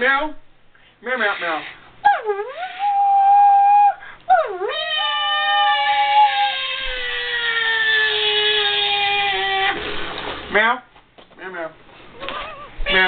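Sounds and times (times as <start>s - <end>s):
people imitating cat meows: 2.1s - 9.8s.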